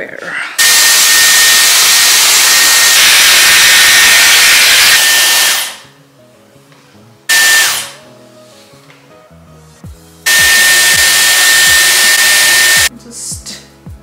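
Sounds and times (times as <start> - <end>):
hair styler blowing air: 0.2 - 5.9, 7.3 - 8.0, 10.3 - 12.9.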